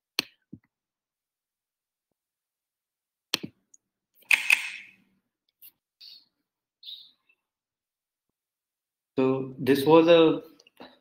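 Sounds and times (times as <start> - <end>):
computer mouse clicks: 4.2 - 4.9.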